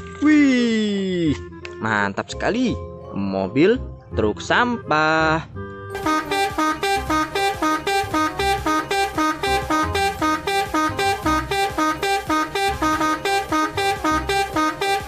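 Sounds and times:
plucked-string music with beat: 5.6 - 15.0.

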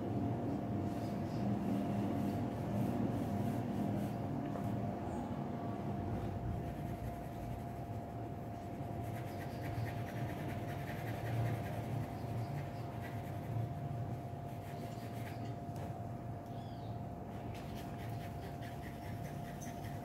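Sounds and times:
low background hum: 0.0 - 20.0
pencil scratching on paper: 6.6 - 8.1, 17.6 - 20.0.

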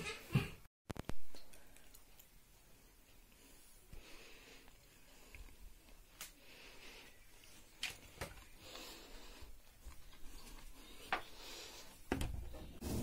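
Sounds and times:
faint breaths: 2.7 - 12.7.

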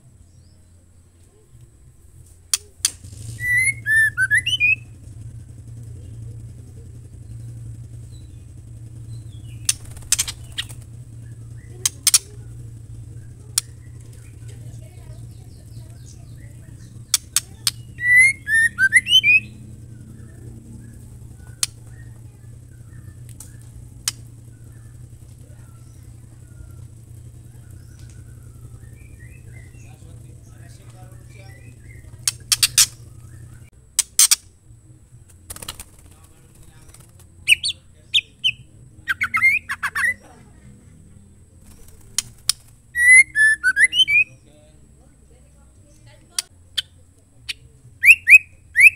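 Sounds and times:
bird sharp clicks: 1.2 - 4.9, 6.4 - 34.5, 35.3 - 40.2, 41.6 - 44.3, 45.9 - 48.9
bird whistled notes: 3.0 - 5.8, 15.2 - 34.4, 37.5 - 40.2, 41.9 - 44.5, 46.8 - 48.9.

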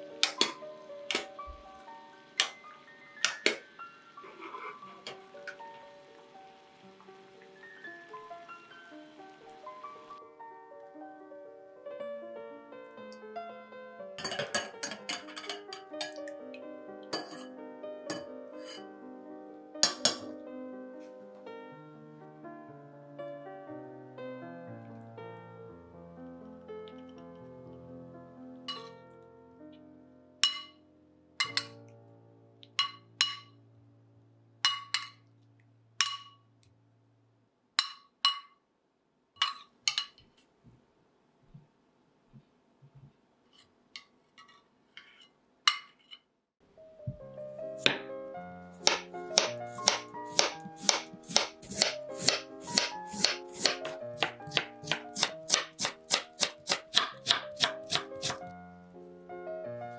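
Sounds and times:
soft background music: 0.0 - 36.5, 46.6 - 59.9
metal spoon clinking ceramic bowl: 14.2 - 16.3, 17.1 - 17.5, 18.1 - 18.8, 19.8 - 20.3, 28.7 - 29.0, 30.4 - 30.8, 31.4 - 31.8, 32.8 - 33.6, 34.7 - 35.2, 36.0 - 36.4, 37.8 - 38.6, 39.4 - 40.2
knife slicing potato on board: 48.8 - 58.4.

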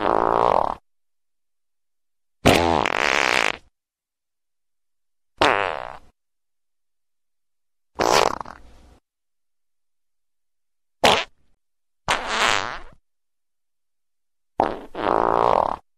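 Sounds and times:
fart sounds: 0.0 - 0.8, 2.4 - 3.7, 5.4 - 6.1, 8.0 - 8.6, 11.0 - 11.4, 12.1 - 13.0, 14.6 - 15.9.

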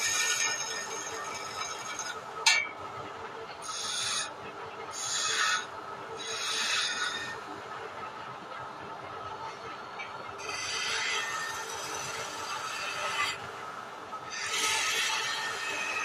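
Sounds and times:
chisel scraping spinning wood: 0.0 - 2.2, 3.6 - 4.3, 4.9 - 7.4, 10.4 - 13.4, 14.3 - 16.0
lathe humming: 0.0 - 2.4, 3.5 - 7.7, 9.5 - 16.0.

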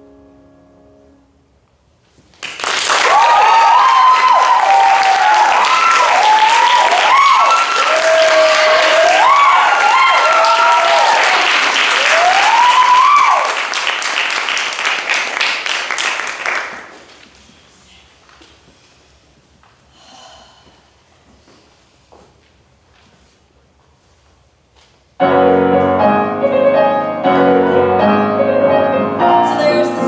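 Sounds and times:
audience applauding: 2.3 - 17.2
whoops and cheers: 2.9 - 13.6.

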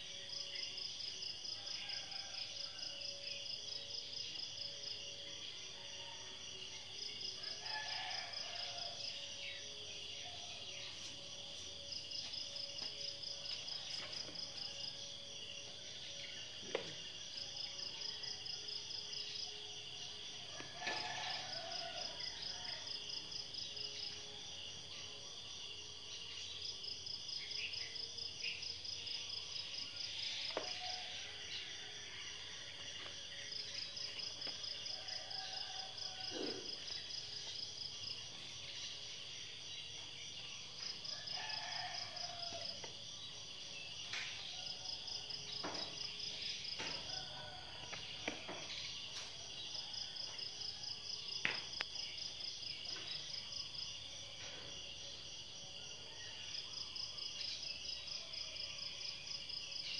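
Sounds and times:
insects trilling: 0.0 - 59.9.

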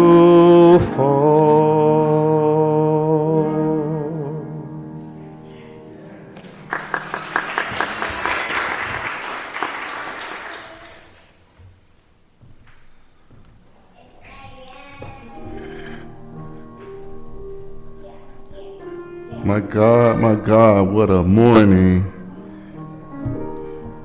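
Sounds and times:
man singing: 0.0 - 4.6, 19.4 - 22.3
upright piano: 0.0 - 11.5, 12.4 - 24.0
congregation clapping: 6.4 - 11.5.

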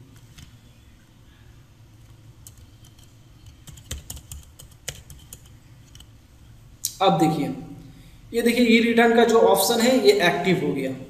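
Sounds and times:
faint low hum: 0.0 - 11.0
computer keyboard keystrokes: 2.4 - 6.1.

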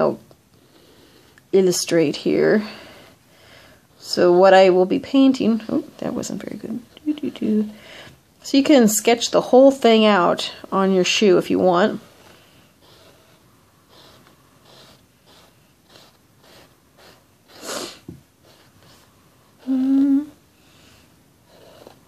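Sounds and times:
chalk scratching on canvas: 11.9 - 19.2, 21.5 - 22.0
person humming: 19.6 - 20.4.

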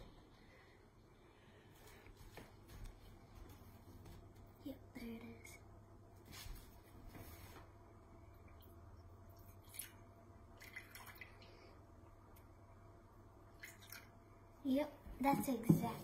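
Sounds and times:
water dripping into a jug: 8.4 - 12.5, 13.5 - 14.2.

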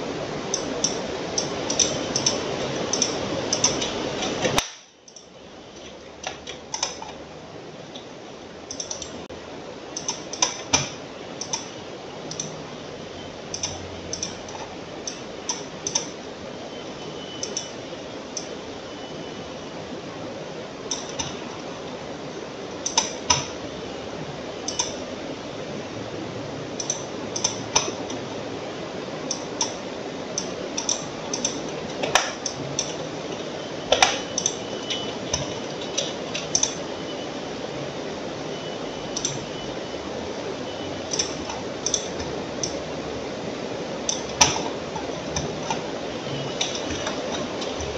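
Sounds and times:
steady background hiss: 0.0 - 47.9
computer mouse clicking: 0.5 - 5.3, 6.2 - 7.2, 8.7 - 9.2, 10.0 - 11.7, 12.3 - 12.6, 13.5 - 16.2, 20.9 - 21.4, 22.8 - 23.5, 24.7 - 25.0.

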